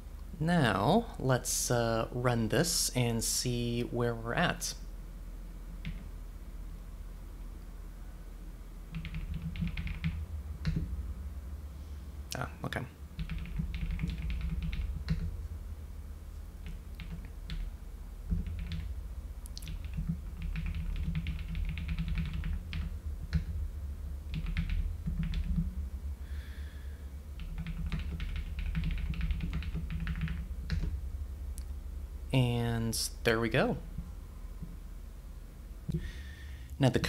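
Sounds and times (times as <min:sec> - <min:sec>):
steady low hum: 0:00.0 - 0:37.0
keyboard typing: 0:05.8 - 0:06.1, 0:08.9 - 0:10.9, 0:13.2 - 0:15.3, 0:16.6 - 0:17.7, 0:18.3 - 0:18.9, 0:19.5 - 0:23.6, 0:24.3 - 0:25.7, 0:27.4 - 0:30.9.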